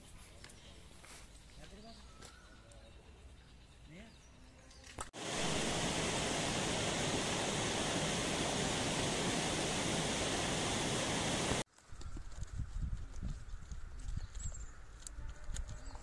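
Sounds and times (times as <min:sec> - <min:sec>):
steady rushing noise: 0:05.2 - 0:11.6.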